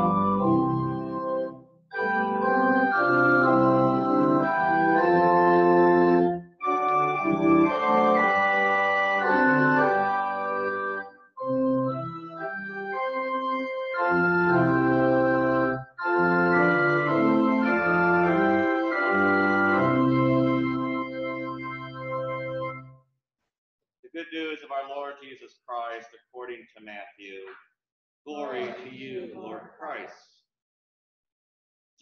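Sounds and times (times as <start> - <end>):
church organ playing a hymn: 0.0 - 22.9.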